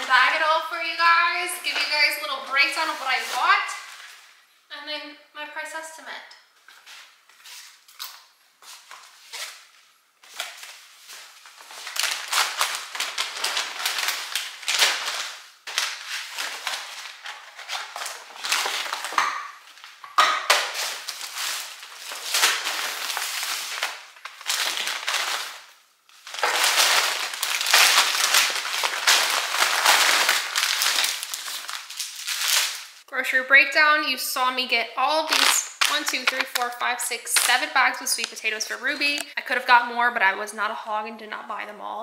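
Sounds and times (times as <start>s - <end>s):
shopping bags rustling: 0.0s - 4.3s, 8.6s - 33.0s, 35.0s - 39.2s
plastic packaging crinkling: 1.6s - 4.3s, 6.6s - 33.0s, 35.1s - 39.4s.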